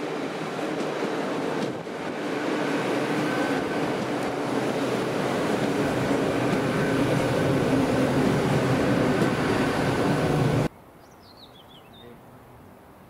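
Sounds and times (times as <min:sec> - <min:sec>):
passenger train passing: 0:00.0 - 0:10.7
bird chirping: 0:11.0 - 0:12.2.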